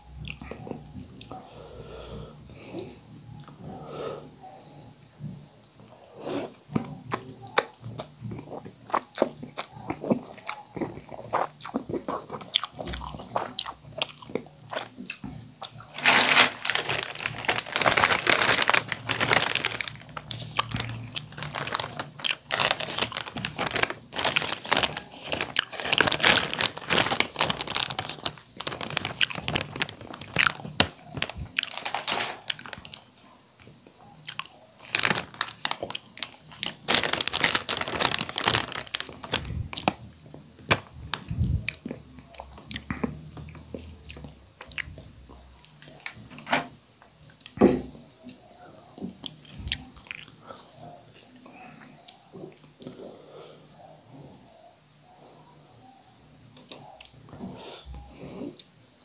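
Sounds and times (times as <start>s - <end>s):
slurping and chewing noodles: 6.0s - 33.2s
plastic packet crinkling: 15.8s - 33.1s, 34.8s - 40.0s.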